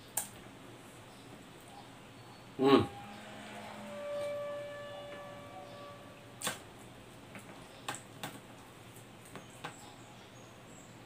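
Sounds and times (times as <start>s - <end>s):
steady held tone: 2.4s - 6.8s.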